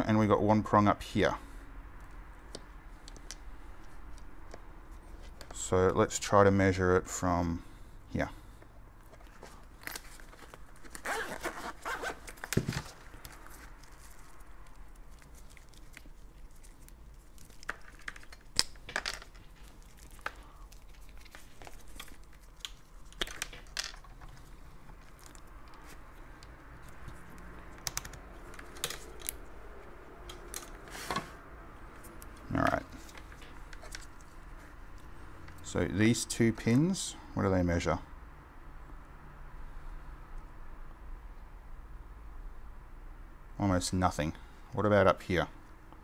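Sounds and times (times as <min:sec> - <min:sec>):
rustling and crinkling: 0:09.0 - 0:29.5, 0:30.3 - 0:35.2
case unzipping: 0:09.8 - 0:13.0.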